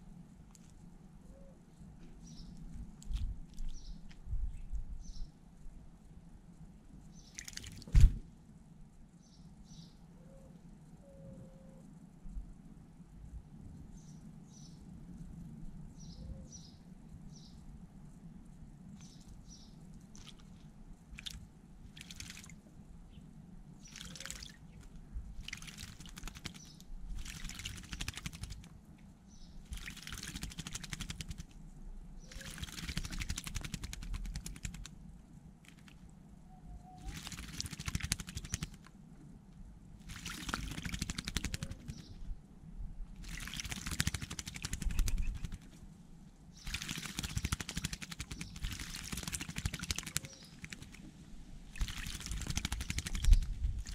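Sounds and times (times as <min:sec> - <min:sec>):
bird wings splashing water: 0:07.3 - 0:08.1, 0:20.1 - 0:22.6, 0:23.8 - 0:28.7, 0:29.6 - 0:31.6, 0:32.2 - 0:34.9, 0:35.6 - 0:36.0, 0:37.0 - 0:38.9, 0:40.0 - 0:42.1, 0:43.2 - 0:45.7, 0:46.6 - 0:51.1, 0:51.7 - 0:53.9.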